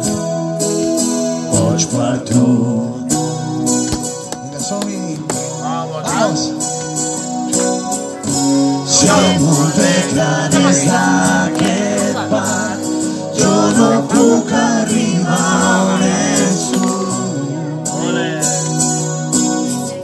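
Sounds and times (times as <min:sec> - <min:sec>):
strummed acoustic guitar: 0:00.0 - 0:20.0
person singing: 0:08.9 - 0:19.0.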